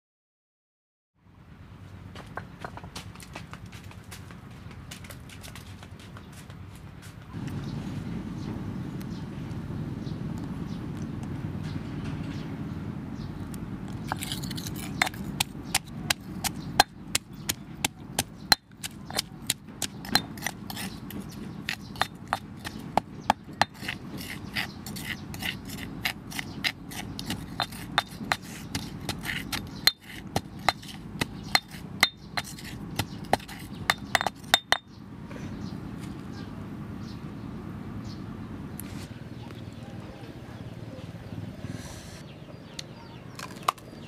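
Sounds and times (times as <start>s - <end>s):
metal spoon clinking stone mortar: 14.1s - 17.0s, 17.8s - 34.9s.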